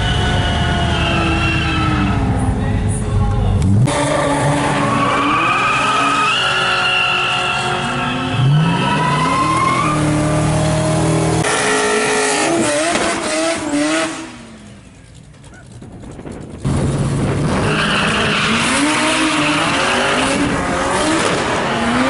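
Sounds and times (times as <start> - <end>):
tyres spinning and squealing: 0.0 - 2.7, 3.6 - 22.0
car engine revving hard: 3.6 - 14.5, 16.7 - 22.0.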